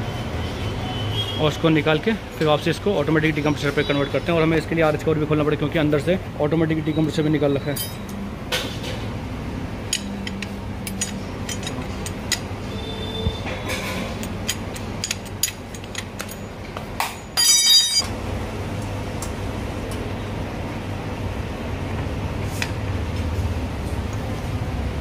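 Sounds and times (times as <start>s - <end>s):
metal parts clicking and clinking: 7.8s - 8.2s, 9.9s - 12.5s, 13.5s - 18.1s.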